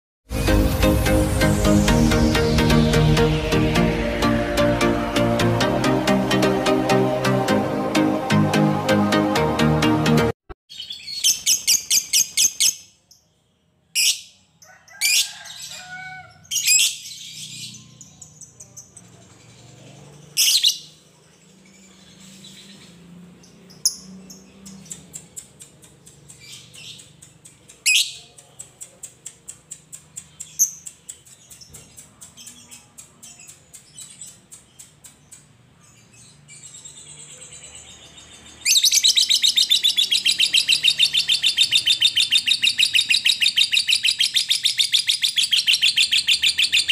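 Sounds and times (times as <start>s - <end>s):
bird chirps: 10.7s - 46.9s
lovebird chattering trill: 38.7s - 46.9s.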